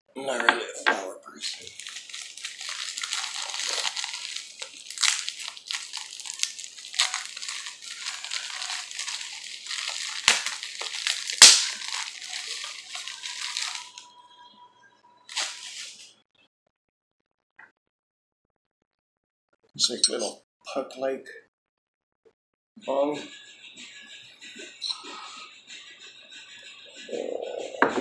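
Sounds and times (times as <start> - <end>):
plastic bag crinkling: 1.4 - 14.0, 15.3 - 16.0.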